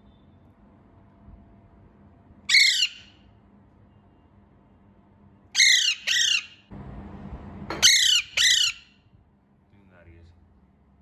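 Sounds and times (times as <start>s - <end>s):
parakeet squawking: 2.5s - 3.2s, 5.6s - 6.7s, 7.8s - 9.0s.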